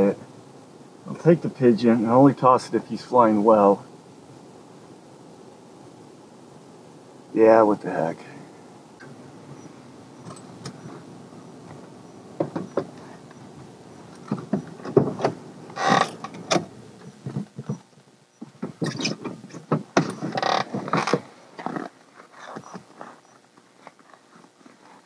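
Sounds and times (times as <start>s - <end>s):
low steady hum: 0.0s - 25.0s
knocks clicks and rustling in a cab: 12.4s - 13.1s, 14.2s - 21.2s.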